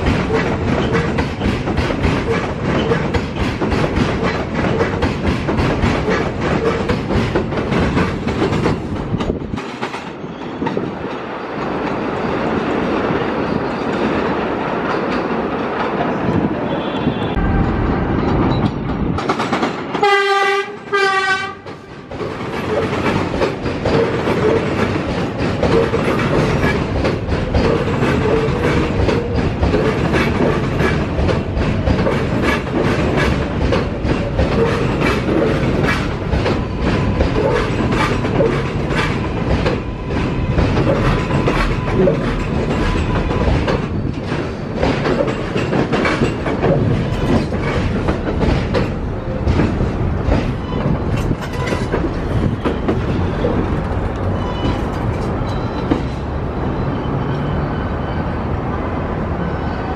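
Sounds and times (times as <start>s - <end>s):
wheels clattering over rail joints: 0.0s - 16.2s, 21.5s - 56.3s
train rumbling past: 0.0s - 59.9s
train horn blasts: 16.6s - 17.8s, 20.0s - 22.0s.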